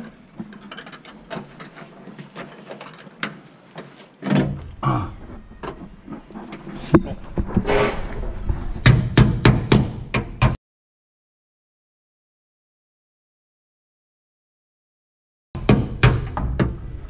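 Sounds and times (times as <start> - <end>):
sheet metal scraping and clinking: 5.4 - 8.8
sharp metal knocks: 8.8 - 10.6, 15.6 - 16.8.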